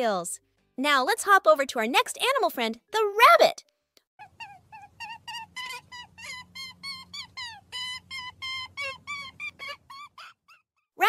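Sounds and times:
high-pitched squeaks: 4.4s - 10.6s.

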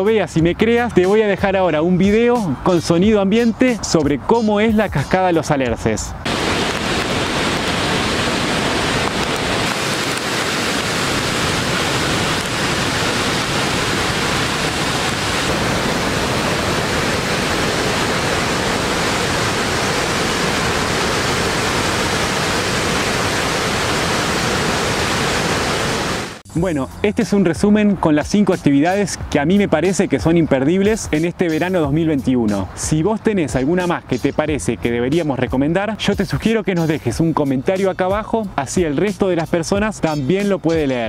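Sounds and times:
waterfall rushing: 6.3s - 26.4s.

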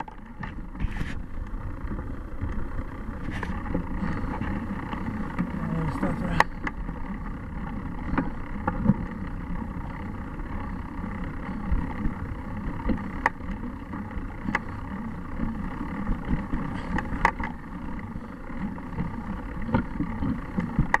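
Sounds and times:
bicycle tyres rumbling on leaves: 0.0s - 20.6s
bike clicks and knocks: 12.2s - 13.6s, 15.7s - 18.6s, 19.4s - 21.0s.

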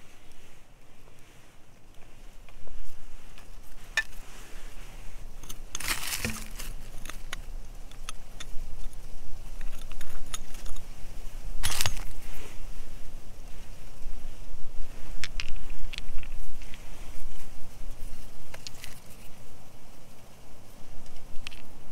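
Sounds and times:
knife scraping in stony soil: 1.9s - 12.7s, 15.0s - 19.4s
pebbles clicking: 5.4s - 10.9s, 15.2s - 16.8s, 18.4s - 19.4s, 21.1s - 21.7s.

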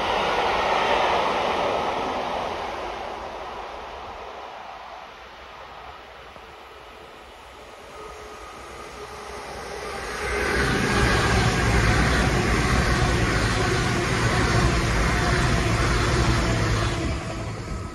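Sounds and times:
train wheels rushing on rails: 6.4s - 17.9s
diesel train engines humming: 7.5s - 17.9s.

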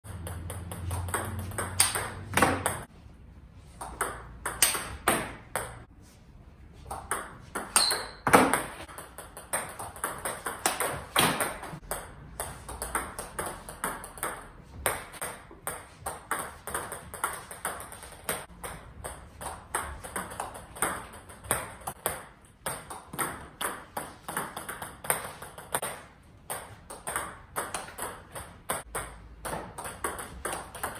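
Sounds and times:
table tennis ball clicks: 0.1s - 2.9s.

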